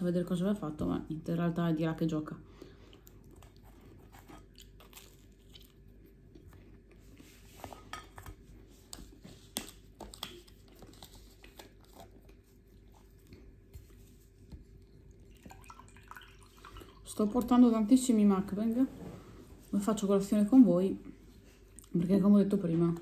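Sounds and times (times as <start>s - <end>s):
chewing pastry: 2.7s - 16.7s.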